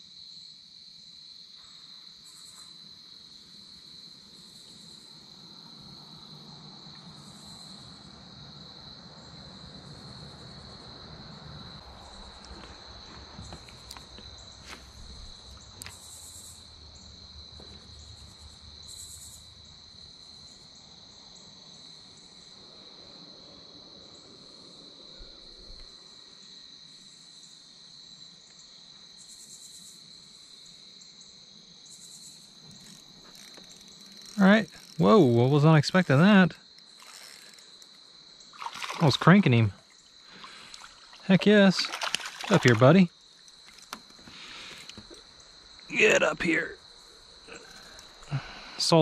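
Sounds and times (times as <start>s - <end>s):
insects trilling: 0.0s - 49.0s
high insect buzzes: 31.8s - 35.0s, 36.0s - 39.1s.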